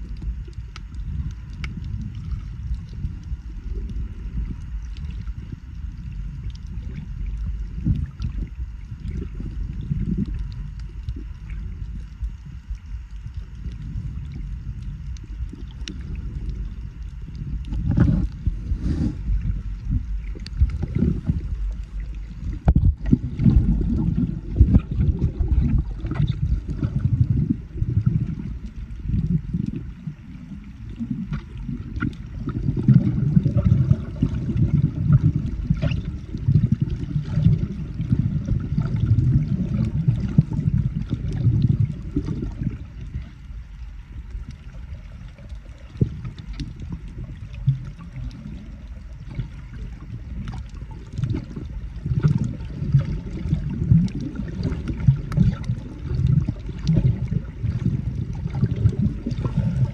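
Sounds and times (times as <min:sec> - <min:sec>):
faint clicks: 0:00.0 - 0:02.0
muffled underwater water rushing: 0:00.0 - 0:59.9.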